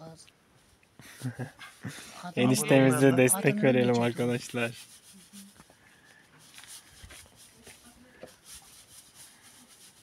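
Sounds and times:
grain scraping in hand mill: 2.4 - 10.0.

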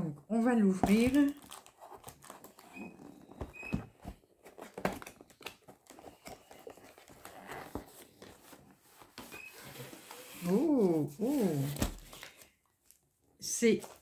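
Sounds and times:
packaging rustling: 0.9 - 10.6.

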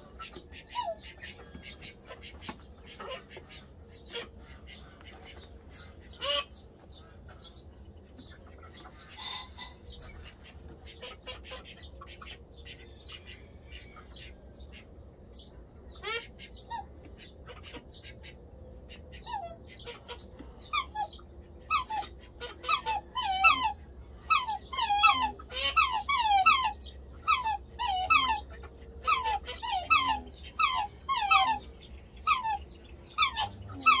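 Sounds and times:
swans bugling calls: 19.2 - 34.0.

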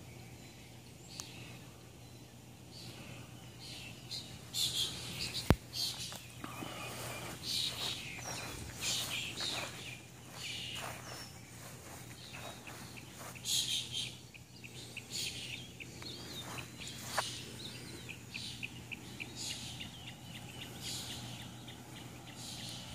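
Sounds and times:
small birds chirping: 0.0 - 22.9
footsteps on soil: 5.2 - 14.1, 16.0 - 17.3.

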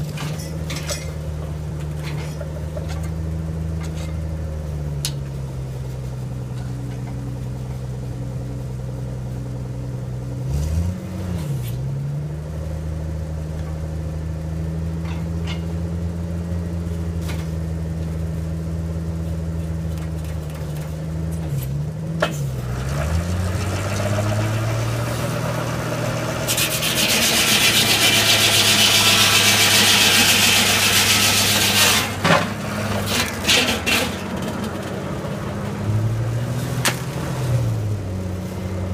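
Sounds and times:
engine running: 0.0 - 38.9
loud hissing rasp: 26.5 - 32.2.

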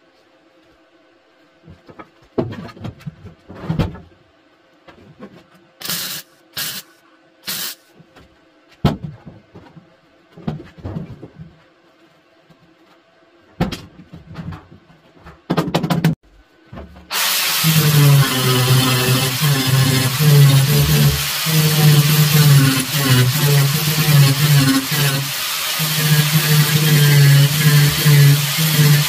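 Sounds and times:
welder hissing and sputtering: 5.8 - 7.9, 17.1 - 29.0.

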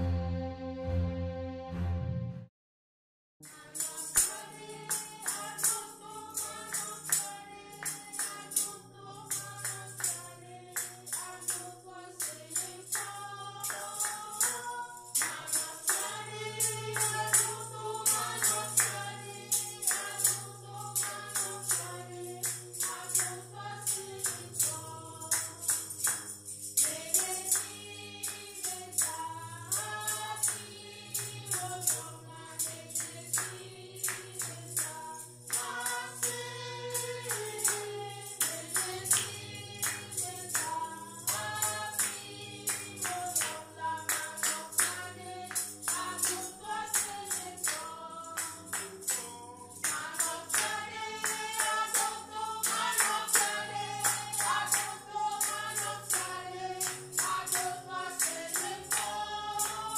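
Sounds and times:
bass line: 0.0 - 2.5
choir singing a hymn: 3.5 - 59.9
hand percussion beat: 3.5 - 59.9.

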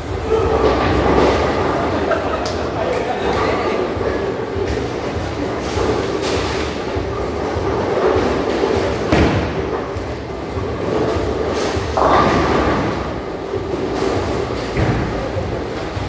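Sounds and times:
bowling alley rumble: 0.0 - 16.0
bowling ball rolling: 0.4 - 2.8, 3.7 - 16.0
bowling ball thudding: 8.2 - 15.6.

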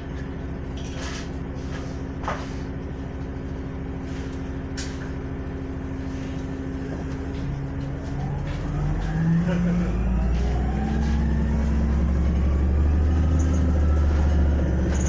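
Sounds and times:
bus engine idling: 0.0 - 15.0.

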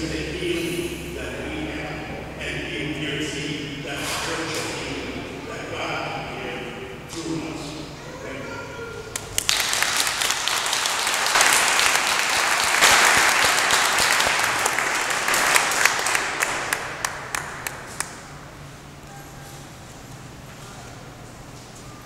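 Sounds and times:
audience applauding: 9.2 - 18.4.

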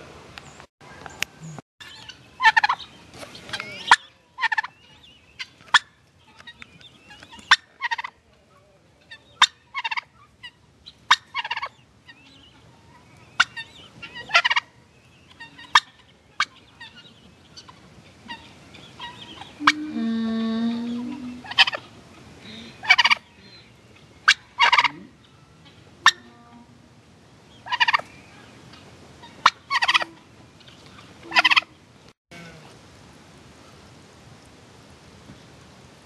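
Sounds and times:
low-pitched turkey sound: 0.8 - 26.7, 27.5 - 32.7
turkey calling: 0.9 - 20.4, 21.0 - 26.4, 27.5 - 31.8.

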